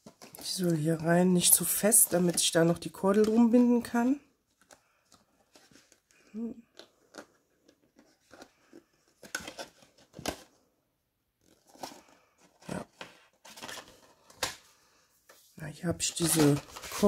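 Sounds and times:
paper rustling: 15.3s - 17.0s.

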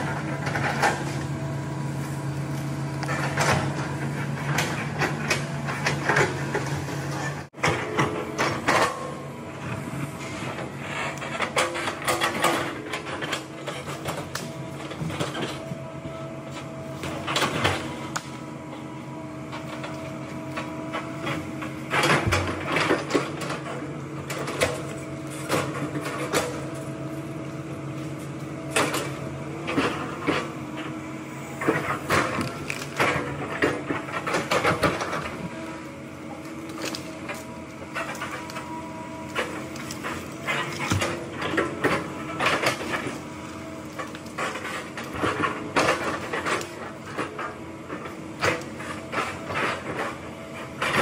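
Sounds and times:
excavator engine running: 0.0s - 51.0s
knocks and clunks of logs: 2.4s - 18.8s, 19.5s - 51.0s.

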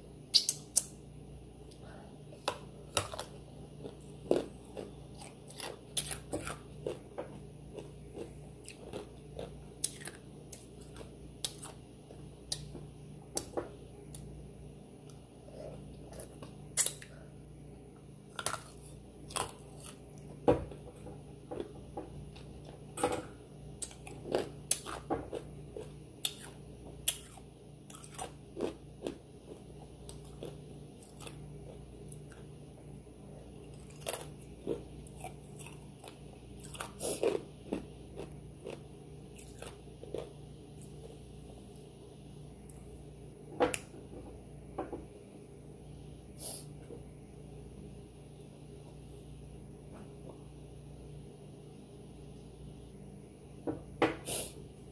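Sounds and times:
steady low hum: 0.0s - 54.9s
person chewing food: 2.3s - 14.4s, 18.3s - 23.0s, 23.8s - 32.6s, 33.4s - 41.3s.

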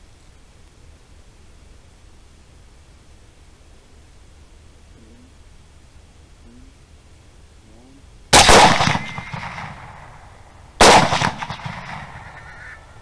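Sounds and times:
suppressed rifle shots: 8.3s - 12.5s.

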